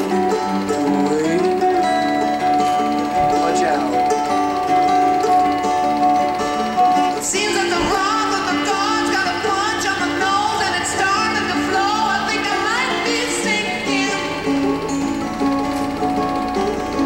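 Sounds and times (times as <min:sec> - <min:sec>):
instrumental pop song: 0:00.0 - 0:17.0.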